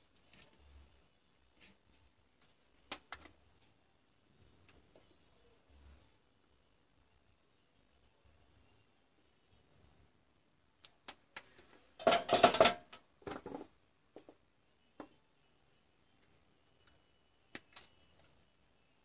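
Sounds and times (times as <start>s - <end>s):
hand tools clattering on wood: 12.0s - 13.6s.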